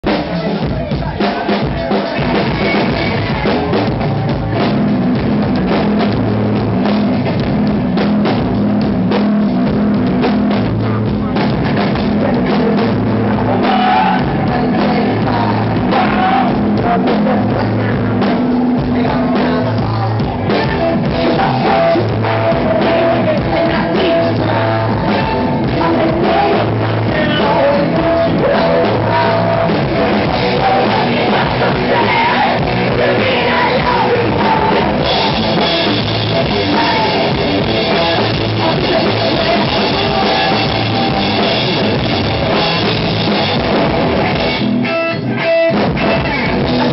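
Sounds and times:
rock band playing: 0.0s - 46.9s
person singing and shouting: 10.6s - 43.0s, 44.3s - 46.9s.

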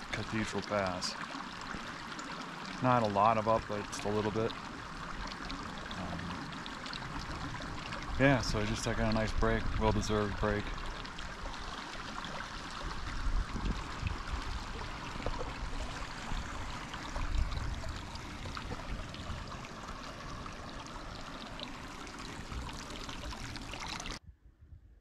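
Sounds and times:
creek water flowing: 0.0s - 24.2s.

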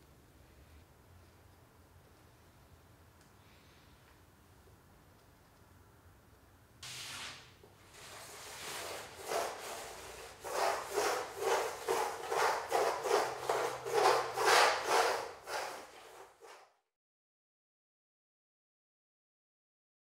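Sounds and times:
hand tool scraping painting: 6.8s - 16.7s.

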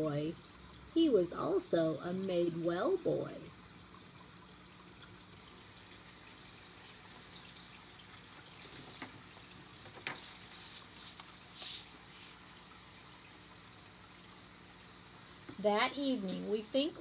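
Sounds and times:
aquarium filter trickle and hum: 0.0s - 17.0s
soft knocks from handling a book: 9.8s - 11.8s
page rustling: 9.8s - 12.0s.

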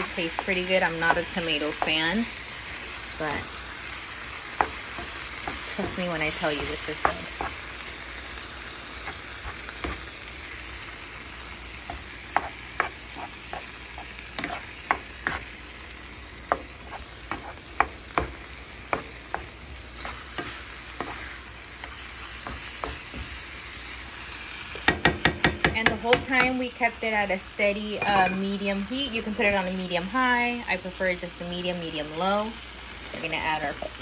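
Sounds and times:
spatula scraping a pan: 0.0s - 7.8s, 8.9s - 10.6s, 11.8s - 23.8s
meat sizzling in a skillet: 0.0s - 34.0s.

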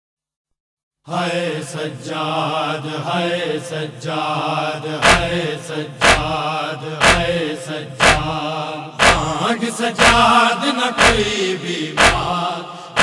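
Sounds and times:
men chanting a lament: 1.1s - 13.0s
rhythmic chest-beating thumps: 5.0s - 13.0s.

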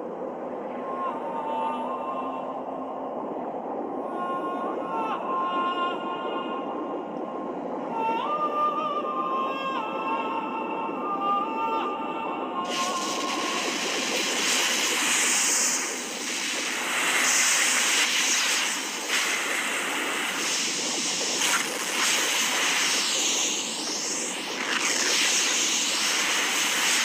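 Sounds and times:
rushing roaring noise: 12.7s - 27.0s.

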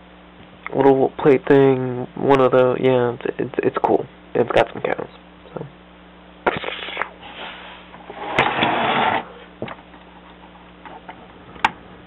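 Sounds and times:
faint electrical hum: 0.0s - 12.0s
rustling scrape: 6.6s - 9.4s.

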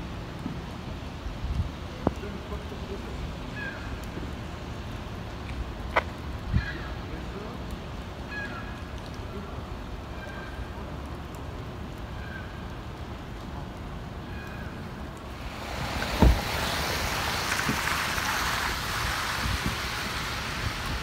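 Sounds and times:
low steady city rumble: 0.0s - 21.0s
loud steady hiss: 15.3s - 21.0s
sharp low thump: 16.0s - 16.6s.

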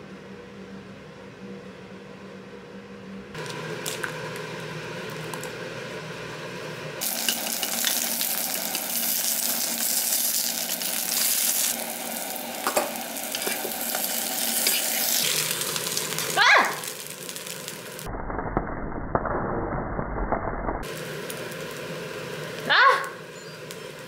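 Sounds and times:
egg sizzling in a pan: 7.0s - 18.1s, 20.8s - 24.0s.

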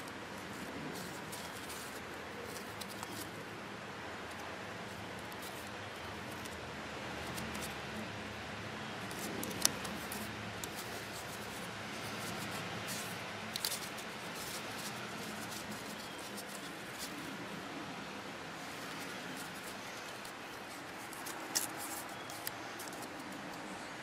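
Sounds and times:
blade scraping cardboard: 9.1s - 17.4s, 18.6s - 23.5s.

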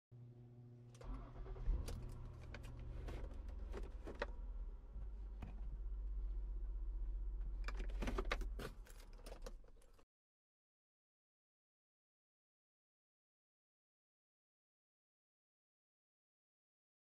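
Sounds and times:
starter hum: 0.2s - 8.6s
car engine starting and idling: 0.9s - 10.0s
clicks and rattles: 7.5s - 10.0s.

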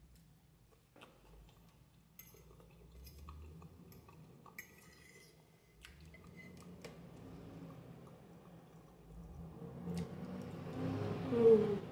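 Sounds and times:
soft chewing: 0.0s - 10.8s
fork scraping on a plate: 4.6s - 5.4s.

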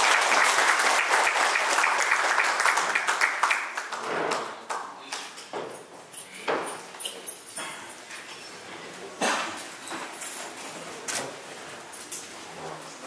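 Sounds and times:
audience applause: 0.0s - 4.8s.

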